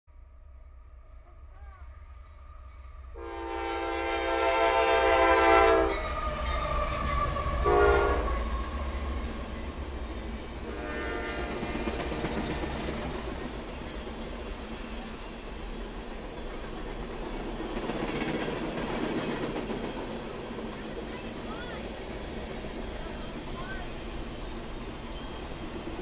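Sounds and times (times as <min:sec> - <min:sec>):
locomotive air horn blasts: 0:03.2 - 0:06.1, 0:07.3 - 0:08.6, 0:10.6 - 0:11.9
freight train wheels clacking: 0:03.3 - 0:26.0.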